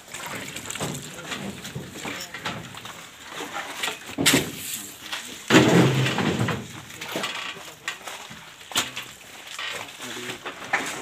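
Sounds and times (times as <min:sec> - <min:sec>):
loud thud: 0:05.5 - 0:06.7.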